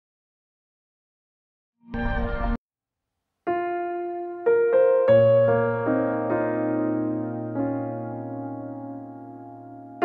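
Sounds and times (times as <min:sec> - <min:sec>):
electric piano chords: 0:03.5 - 0:10.0.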